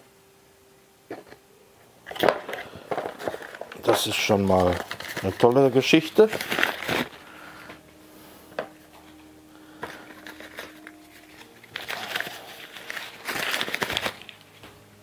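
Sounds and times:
cardboard rustling and scraping: 2.1s - 7.2s, 9.8s - 14.5s.

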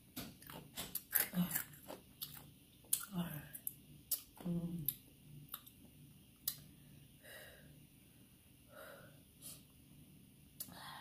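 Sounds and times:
soft breathing: 6.6s - 9.8s, 10.6s - 11.0s.

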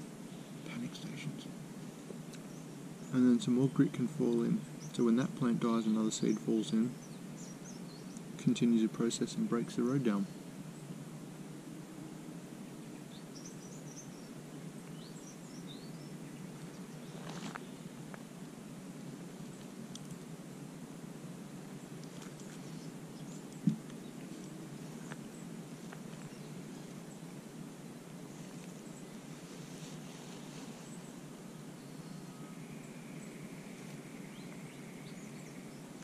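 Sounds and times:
low background hum: 0.0s - 36.0s
low thump: 23.6s - 23.9s.

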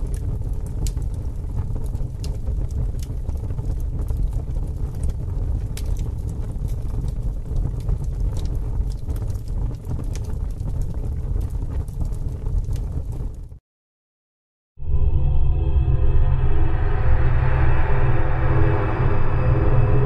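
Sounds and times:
crackles and clicks: 0.0s - 13.6s
low rumbling noise: 0.0s - 13.6s, 14.8s - 20.0s.

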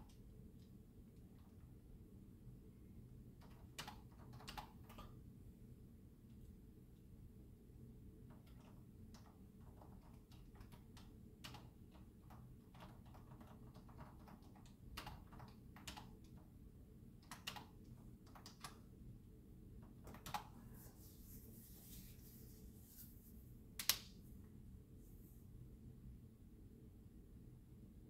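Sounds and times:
typing on a keyboard: 3.4s - 5.2s, 8.3s - 16.5s, 17.2s - 18.9s, 19.8s - 20.5s.

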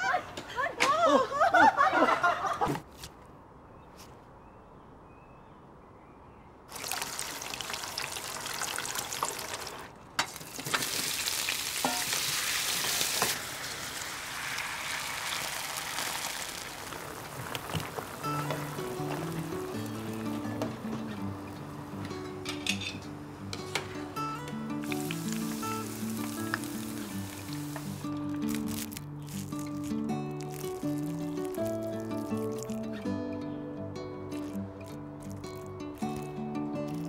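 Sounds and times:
food sizzling in hot oil: 6.7s - 20.6s, 24.8s - 32.9s, 34.4s - 37.0s
liquid boiling: 6.7s - 22.0s, 24.8s - 33.0s, 34.3s - 37.0s.

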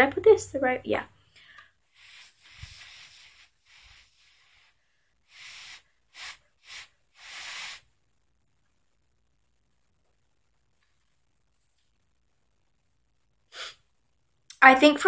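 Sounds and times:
person exhaling airy puffs: 1.4s - 7.9s, 13.5s - 13.8s.

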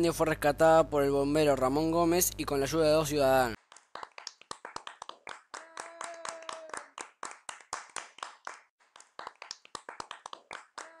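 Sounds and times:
people hand clapping: 3.6s - 11.0s.

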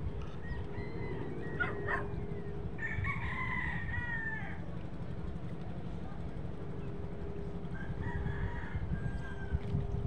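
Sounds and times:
steady low rumble: 0.0s - 10.0s
rooster crowing: 2.8s - 4.6s, 7.7s - 9.5s.

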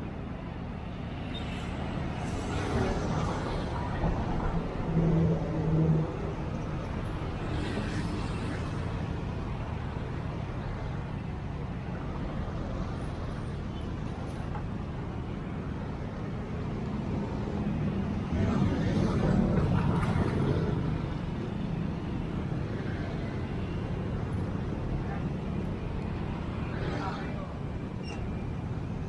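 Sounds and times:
traffic rumble: 0.0s - 29.0s.

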